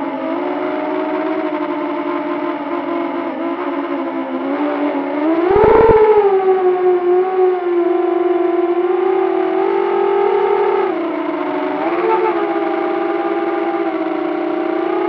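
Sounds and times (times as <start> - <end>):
drone motors whining: 5.2 - 7.5
wind rumble on microphone: 5.4 - 6.8.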